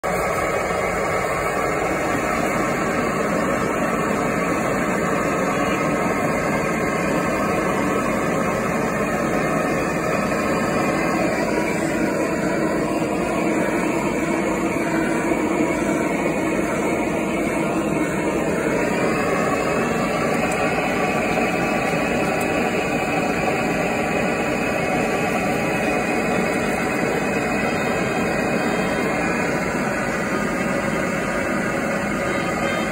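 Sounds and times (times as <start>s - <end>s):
gas torch burning: 0.0s - 32.9s.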